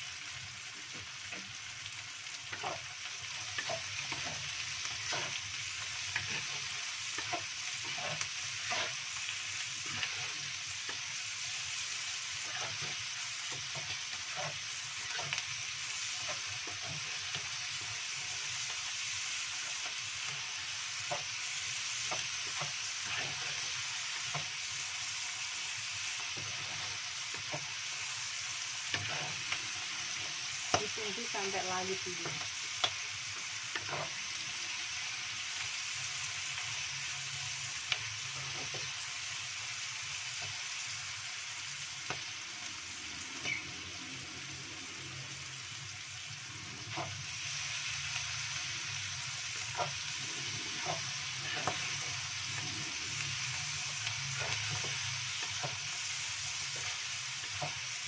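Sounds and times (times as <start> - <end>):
food sizzling in oil: 0.0 - 58.0
wooden spatula scraping a pan: 2.5 - 9.1, 12.4 - 15.4, 22.0 - 24.6, 28.8 - 32.5, 33.8 - 34.2, 49.6 - 55.8.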